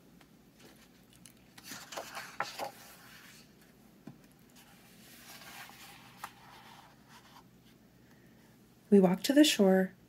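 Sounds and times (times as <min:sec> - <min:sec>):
soft paper rustle: 0:00.6 - 0:07.8.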